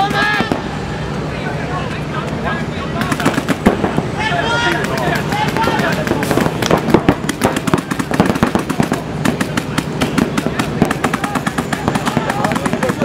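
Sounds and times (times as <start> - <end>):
paintball markers firing: 4.6 - 13.0.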